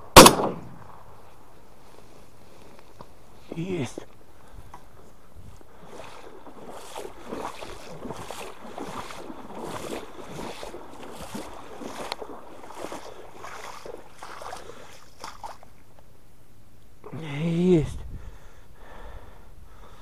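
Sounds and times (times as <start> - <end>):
rhythmic splashing of water: 5.7 - 15.8.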